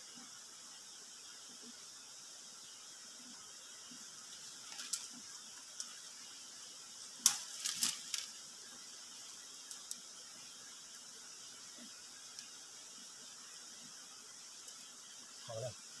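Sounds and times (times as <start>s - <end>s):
steady high hiss: 0.0s - 16.0s
basket clicking on dry leaves: 7.2s - 8.3s.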